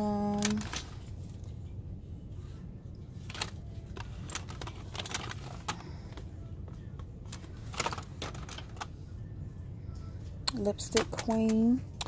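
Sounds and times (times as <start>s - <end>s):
plastic packaging rattling: 0.0s - 1.1s, 3.2s - 6.2s, 7.3s - 8.9s
low store hum: 0.0s - 12.0s.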